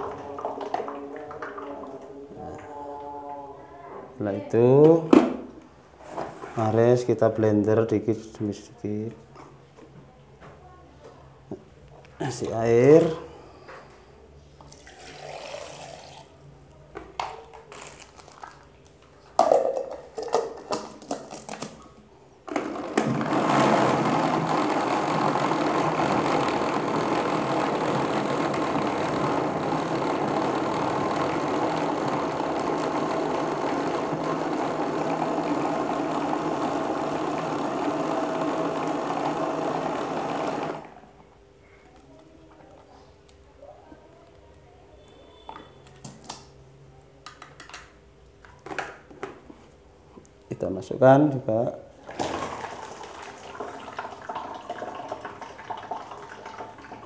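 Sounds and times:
electric blender running: 14.7 - 16.3, 22.5 - 41.0, 52.1 - 57.0.

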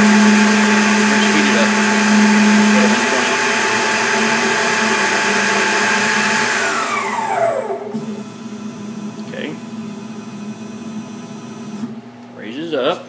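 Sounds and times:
low hum: 0.0 - 4.6
spindle motor whine: 0.0 - 12.0.

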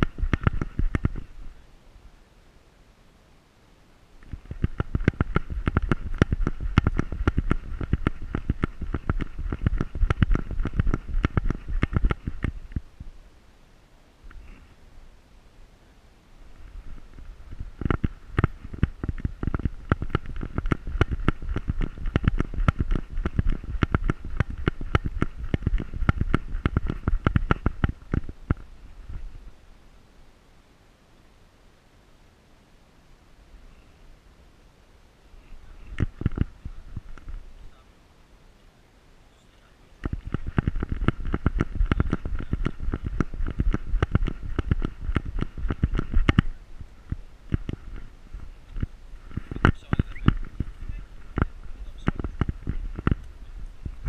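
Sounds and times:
camera knocking and thudding: 0.0 - 1.3, 4.2 - 12.9, 16.8 - 29.2, 35.9 - 37.4, 40.0 - 46.5, 47.1 - 48.1, 48.7 - 54.0
low rumbling: 4.2 - 13.4, 16.3 - 29.9, 40.0 - 54.0.

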